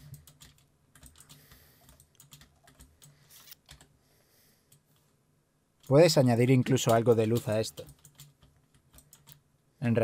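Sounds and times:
keyboard keys clicking: 0:00.1 - 0:03.1.

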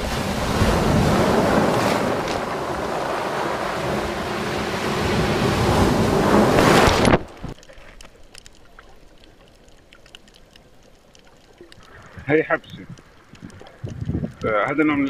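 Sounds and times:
surf breaking on pebbles: 0:00.0 - 0:08.0
faint clicks underwater: 0:06.9 - 0:15.0.

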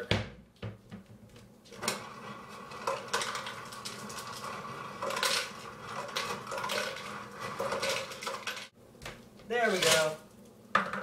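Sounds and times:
ice cubes clattering into plastic bowl: 0:02.7 - 0:08.7.

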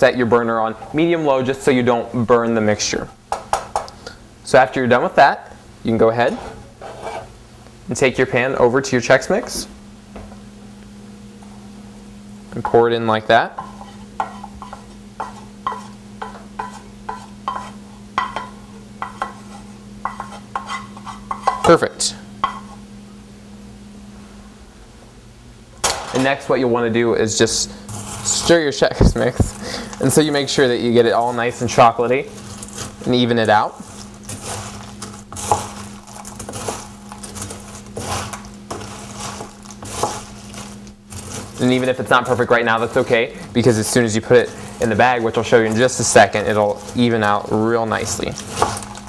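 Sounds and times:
steady low hum: 0:00.0 - 0:49.0
spatula scraping saucepan: 0:06.2 - 0:07.4, 0:13.5 - 0:21.7, 0:27.7 - 0:49.0
spoon stirring cereal in metal bowl: 0:13.5 - 0:21.7, 0:27.8 - 0:49.0.

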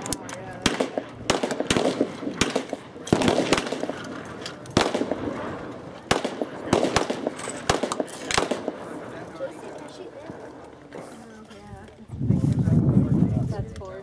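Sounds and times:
gunshots with short echo: 0:00.6 - 0:09.0.

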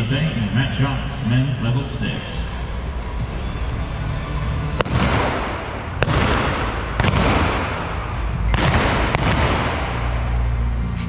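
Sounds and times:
pistol shots echoing: 0:04.7 - 0:10.5.

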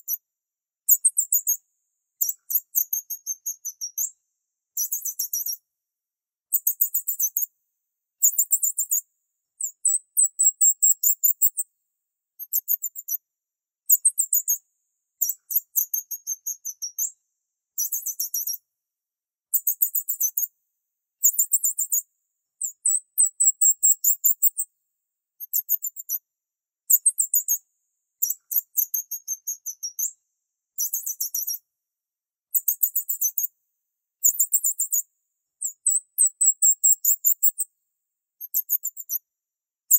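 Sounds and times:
high-pitched chirping bursts: 0:35.6 - 0:37.6.

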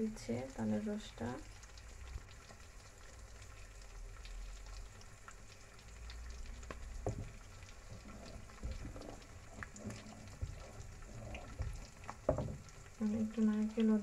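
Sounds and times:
milk simmering in a pan: 0:00.0 - 0:14.0
small popping crackle: 0:00.5 - 0:14.0
wooden spatula knocking a pan: 0:07.0 - 0:12.8.

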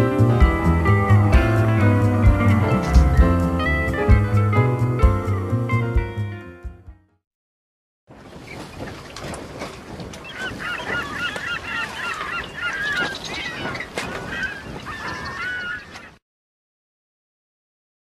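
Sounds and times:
flock of birds calling: 0:10.2 - 0:16.2.

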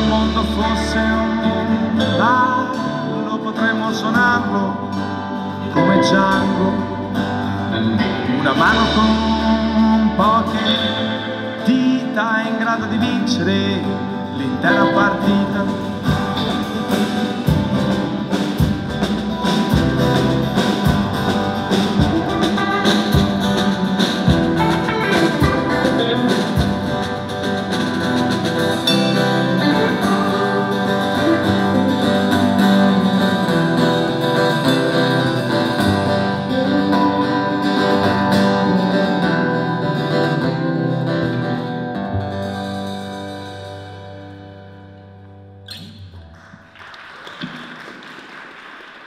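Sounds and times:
drum kit: 0:00.0 - 0:03.0, 0:05.0 - 0:11.9, 0:14.8 - 0:39.2
guitar chords: 0:00.0 - 0:46.7.

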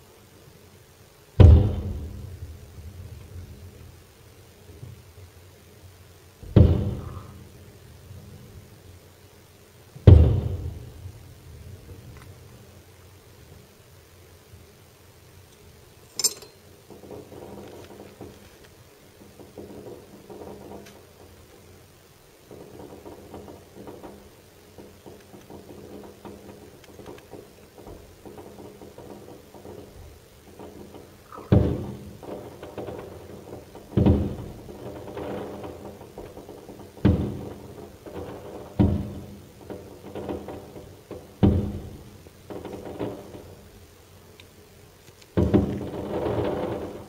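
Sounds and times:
firework booms: 0:01.4 - 0:03.0, 0:06.4 - 0:07.4, 0:45.4 - 0:47.0
firework crack: 0:16.6 - 0:47.0.

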